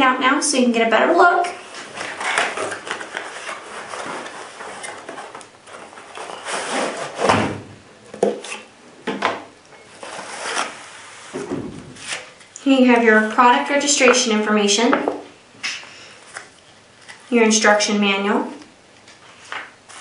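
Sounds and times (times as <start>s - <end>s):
card rustling: 1.7s - 7.1s
cardboard scrapes: 1.7s - 7.4s, 10.0s - 12.4s.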